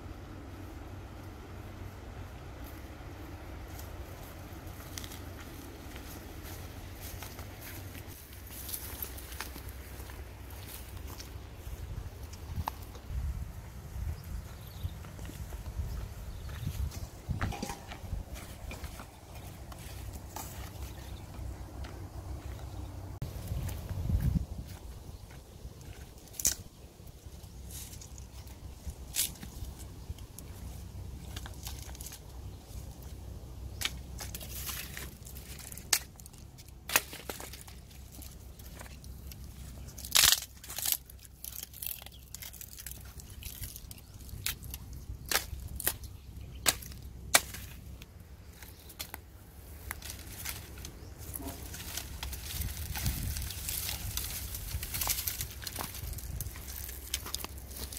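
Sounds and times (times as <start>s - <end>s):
wind rumble on microphone: 11.5s - 26.5s, 51.0s - 57.7s
dry sticks snapping: 25.8s - 26.9s, 27.7s - 30.6s, 31.2s - 57.9s.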